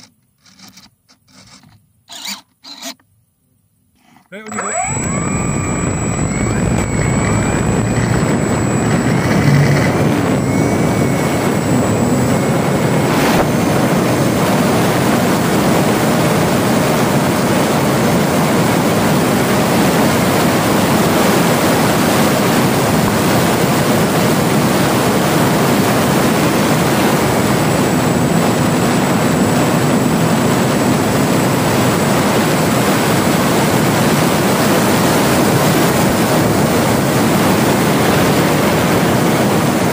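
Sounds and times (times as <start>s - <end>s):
faint thin whine: 4.0s - 14.8s
propeller and wind rush: 4.9s - 39.9s.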